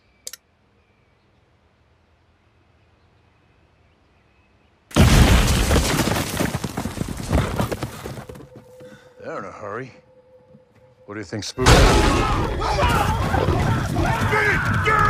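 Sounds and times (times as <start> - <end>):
loud rumbling crash: 11.6 - 15.0.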